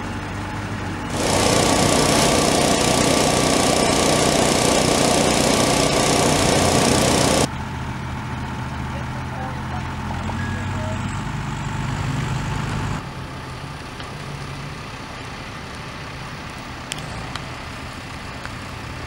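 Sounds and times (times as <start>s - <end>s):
sharp cracks: 1.1s - 7.5s.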